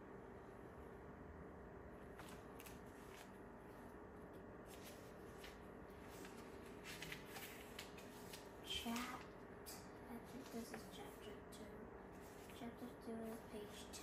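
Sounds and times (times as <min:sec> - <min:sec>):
faint steady hum: 0:00.0 - 0:14.0
book pages rustling: 0:02.0 - 0:03.8, 0:04.6 - 0:09.3, 0:12.1 - 0:12.7.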